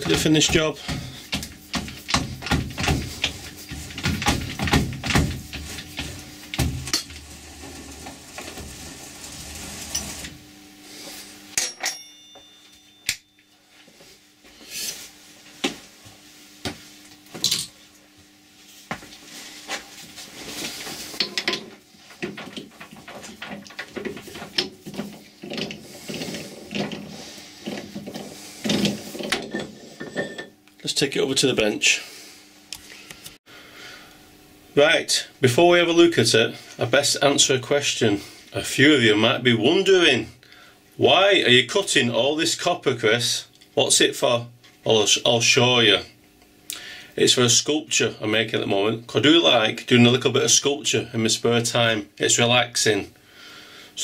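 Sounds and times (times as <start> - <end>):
metal clinks and knocks of tooling: 11.6 - 13.4
short metallic ring: 11.6 - 13.5.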